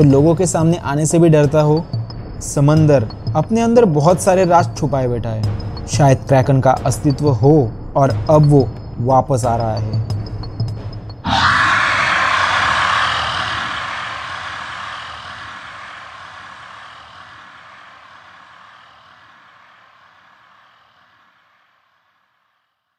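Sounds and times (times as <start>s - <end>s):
sea monster roar: 11.3s - 19.1s.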